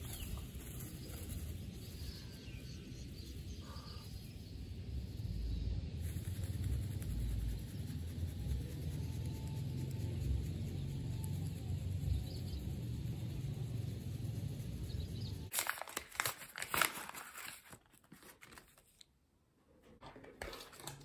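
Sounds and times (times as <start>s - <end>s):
paper package tearing and crinkling: 15.5s - 19.1s.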